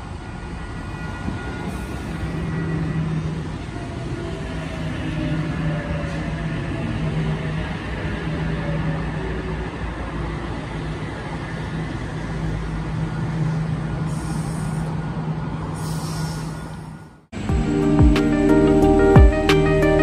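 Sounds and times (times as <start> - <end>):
electric train rumble: 0.0 - 20.0
short high hisses: 14.1 - 14.9, 15.8 - 16.9.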